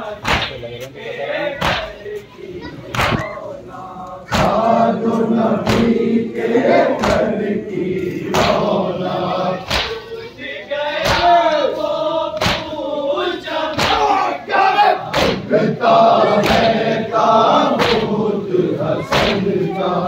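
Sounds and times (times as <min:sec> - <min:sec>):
crowd chanting a lament: 0:00.0 - 0:20.0
chest-beating slaps: 0:00.2 - 0:00.6, 0:01.6 - 0:02.0, 0:02.9 - 0:03.4, 0:04.3 - 0:04.7, 0:05.6 - 0:06.0, 0:07.0 - 0:07.3, 0:08.3 - 0:08.8, 0:09.6 - 0:10.1, 0:11.0 - 0:11.4, 0:12.4 - 0:12.8, 0:13.7 - 0:14.0, 0:15.1 - 0:15.5, 0:16.4 - 0:16.8, 0:17.7 - 0:18.2, 0:19.1 - 0:19.6.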